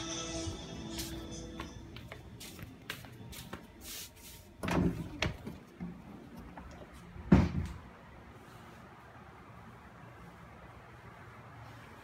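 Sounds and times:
air conditioner hum: 0:00.0 - 0:12.0
knocks and thumps: 0:07.3 - 0:07.8.

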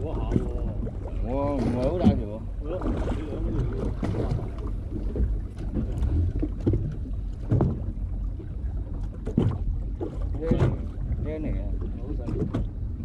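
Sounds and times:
boat engine rumble: 0:00.0 - 0:13.0.

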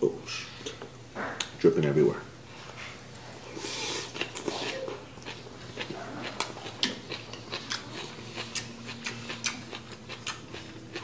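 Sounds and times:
person chewing food: 0:03.4 - 0:11.0.

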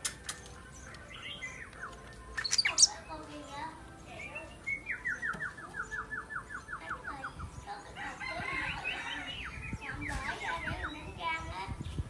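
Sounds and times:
bird singing falling whistled notes: 0:00.6 - 0:03.1, 0:04.3 - 0:07.6.

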